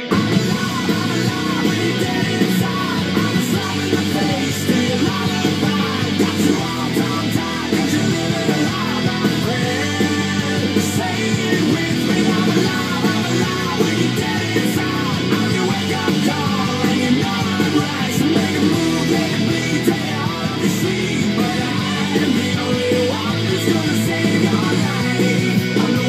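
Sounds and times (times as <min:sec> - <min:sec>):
rock music with guitar: 0:00.0 - 0:26.0.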